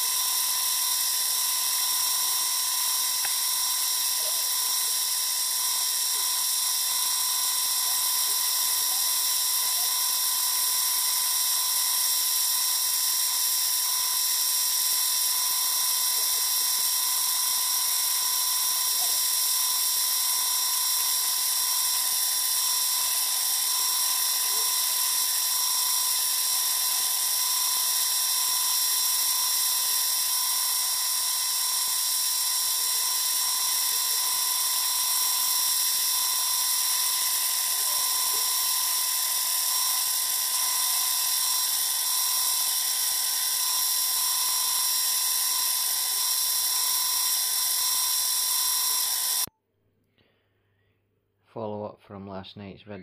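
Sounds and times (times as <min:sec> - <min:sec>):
stone polishing on pad: 0:00.0 - 0:14.2, 0:14.9 - 0:49.5
drill press high-pitched whine: 0:00.0 - 0:49.5.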